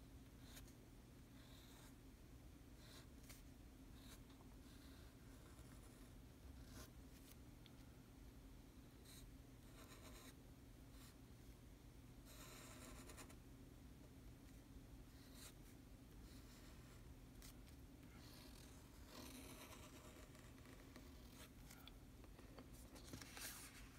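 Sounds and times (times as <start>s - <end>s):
pen nib scratching paper: 9.0s - 10.4s, 12.3s - 13.4s, 16.2s - 21.8s.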